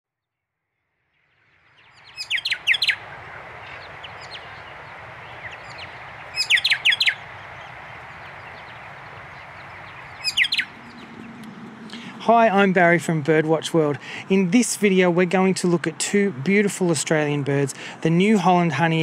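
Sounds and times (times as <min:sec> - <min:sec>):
bird sharp downward chirps: 0:01.0 - 0:12.0
bird chatter: 0:01.8 - 0:12.2.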